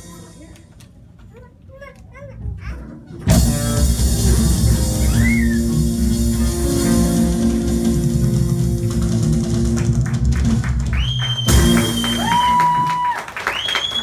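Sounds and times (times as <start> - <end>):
live rock band playing: 3.2 - 12.9
high whistles: 5.0 - 5.8, 10.9 - 14.0.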